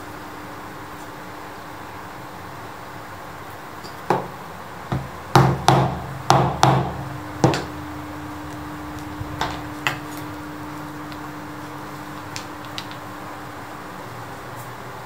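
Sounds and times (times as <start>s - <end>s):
mallet striking leather punch: 4.9s - 7.7s.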